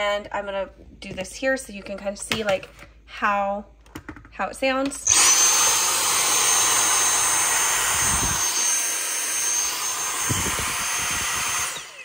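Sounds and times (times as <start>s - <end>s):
handheld vacuum running: 5.0s - 12.0s.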